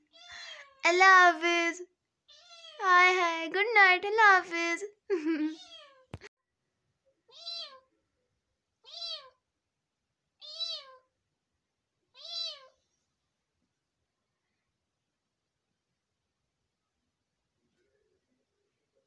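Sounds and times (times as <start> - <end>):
kitten meowing: 2.3 - 2.8, 5.5 - 6.0, 7.3 - 7.9, 8.8 - 9.4, 10.4 - 11.1, 12.1 - 12.8.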